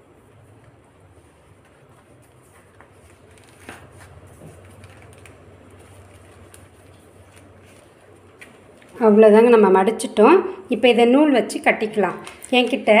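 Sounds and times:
steady low hum: 0.0 - 13.0
leaf rustling and crinkling: 1.6 - 9.1.

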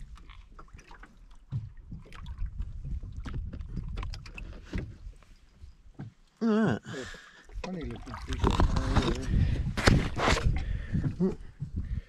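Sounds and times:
water slapping boat hull: 0.0 - 6.4, 7.3 - 12.0
wind rumbling on microphone: 1.5 - 5.8, 7.9 - 12.0.

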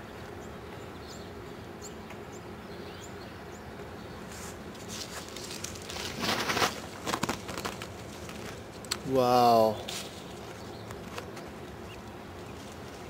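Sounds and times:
leaves and twigs rustling: 4.2 - 13.0.

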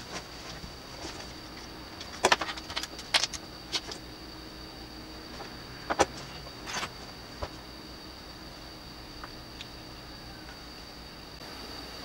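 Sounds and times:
faint high-pitched whine: 0.0 - 12.0.

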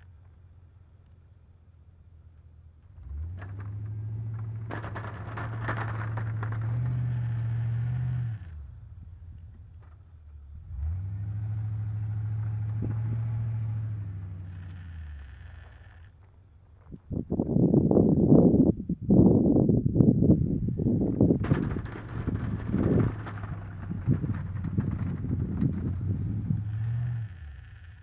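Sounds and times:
pickup engine revving under load: 3.0 - 8.8, 10.6 - 16.1, 20.2 - 28.0
snow scraping off plow blade: 4.8 - 8.5, 21.5 - 28.0.

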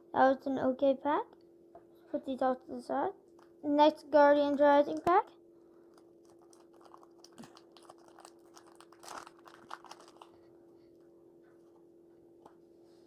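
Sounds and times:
foil wrapper crinkling and tearing: 5.9 - 10.5.

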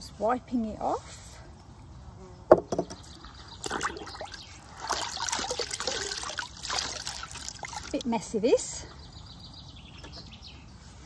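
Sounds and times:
water splashing in a bucket: 3.2 - 8.1.

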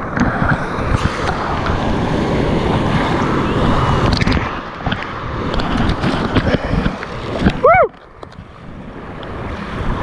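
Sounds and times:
whitewater rushing and splashing: 0.0 - 10.0.

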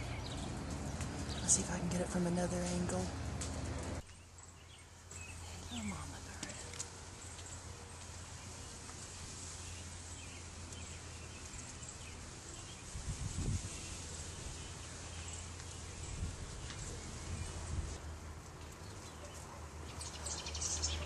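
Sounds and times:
distant bird chirps: 0.0 - 2.2, 3.6 - 13.0.

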